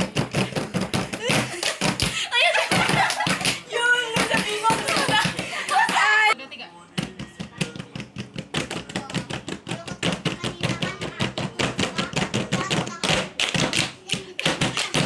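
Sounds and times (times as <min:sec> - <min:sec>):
hands tapping wooden tabletop: 0:04.2 - 0:06.0, 0:07.0 - 0:15.0.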